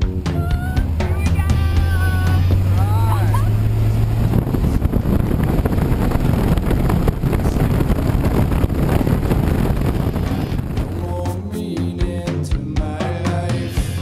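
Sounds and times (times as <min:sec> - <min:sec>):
music: 0:00.0 - 0:05.4, 0:07.4 - 0:14.0
plane engine and propeller: 0:00.0 - 0:11.4
wind rushing over microphone: 0:00.7 - 0:11.5.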